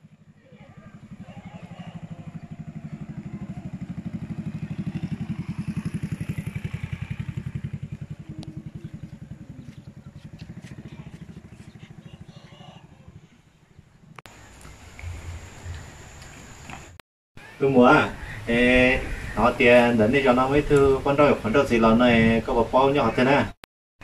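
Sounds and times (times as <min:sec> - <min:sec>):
small motorcycle passing: 0:00.0 - 0:17.0.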